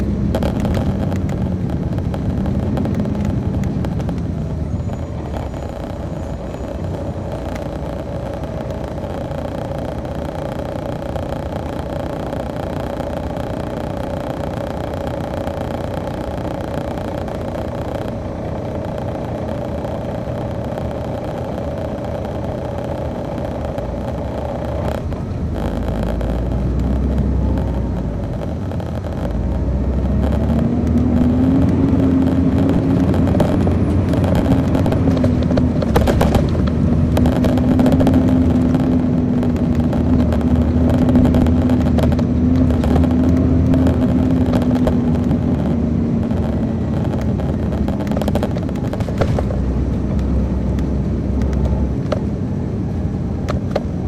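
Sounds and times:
coach diesel engine running: 0.0 - 54.0.

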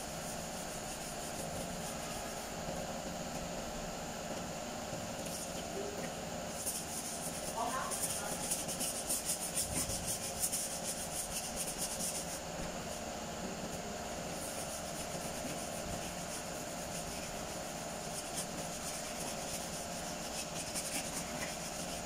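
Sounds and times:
sanding strokes on car panel: 0.0 - 2.5, 6.5 - 13.0, 14.3 - 22.0
steady background hum: 0.0 - 22.0.

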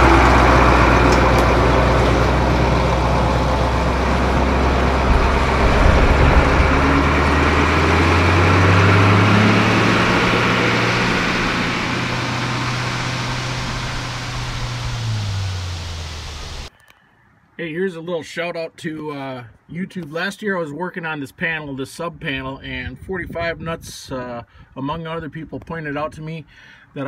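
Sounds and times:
diesel truck driving off: 0.0 - 16.7.

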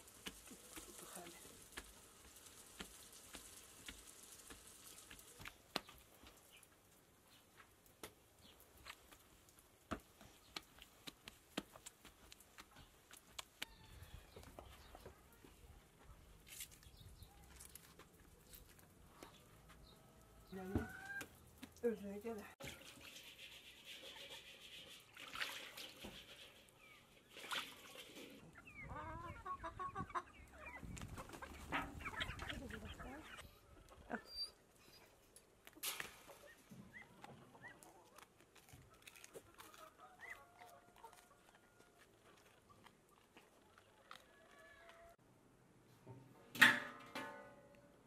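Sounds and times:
hands slapping bread dough: 1.7 - 6.1, 9.9 - 13.7
chickens clucking: 20.6 - 21.3, 27.9 - 34.3, 36.2 - 41.9
water splashing in metal basin: 25.1 - 26.5, 27.2 - 28.4.

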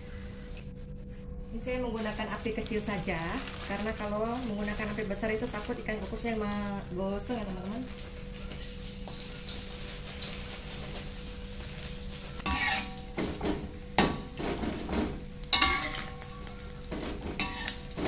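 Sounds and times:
fish sizzling in oil: 7.6 - 18.0
metal spatula scraping a wok: 12.1 - 13.2, 15.6 - 16.2, 17.1 - 18.0.

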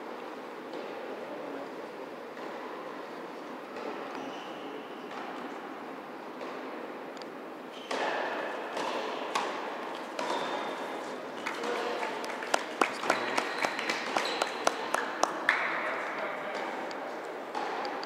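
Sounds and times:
tennis balls struck and bouncing: 7.8 - 10.9, 17.5 - 18.0.

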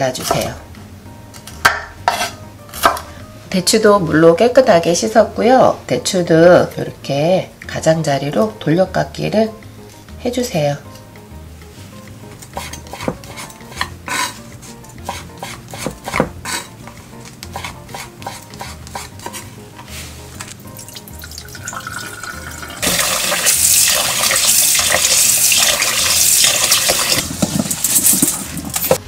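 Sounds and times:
knife cutting on wooden board: 2.1 - 3.0, 12.4 - 20.5.

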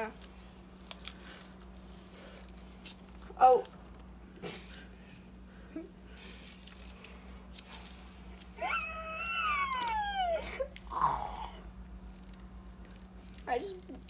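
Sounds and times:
high-pitched whining cry: 8.6 - 11.7.

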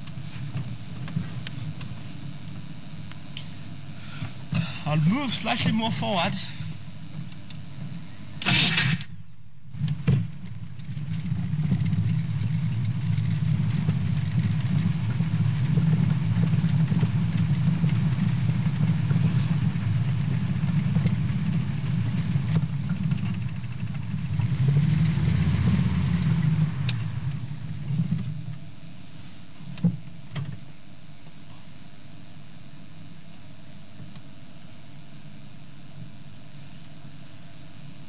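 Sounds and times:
vehicle engine starting and running: 9.8 - 28.3.

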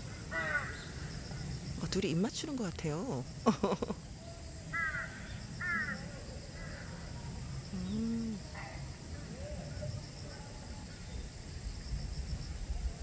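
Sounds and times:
crows cawing: 0.3 - 0.9, 4.7 - 6.0.

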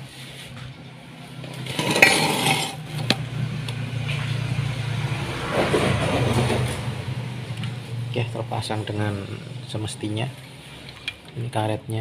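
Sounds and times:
metal engine parts clinking and scraping: 1.4 - 3.2
steady low hum: 6.6 - 12.0.

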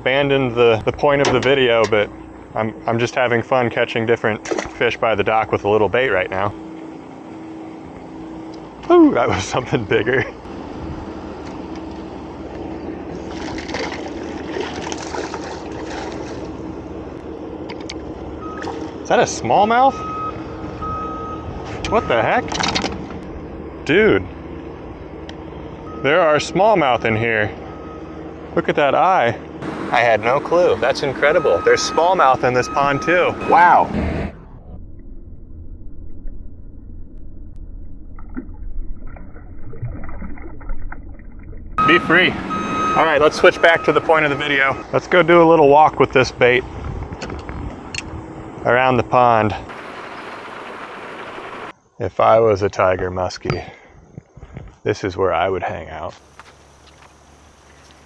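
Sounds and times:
muffled water sloshing: 4.3 - 5.6, 10.5 - 19.1, 34.6 - 44.8
fish splashing in water: 13.2 - 16.6, 38.2 - 41.6.

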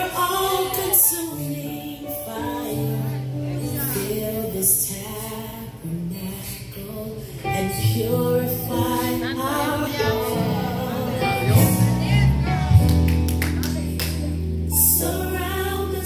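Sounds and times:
voices singing worship song: 0.0 - 12.5, 13.8 - 16.0
instrumental backing: 7.5 - 16.0.

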